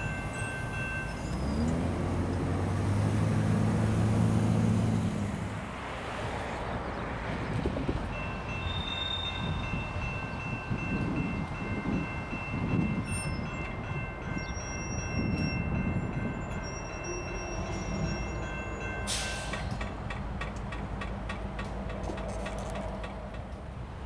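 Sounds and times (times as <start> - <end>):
diesel locomotive engine rumbling: 0.0 - 24.0
high ringing: 8.2 - 19.5.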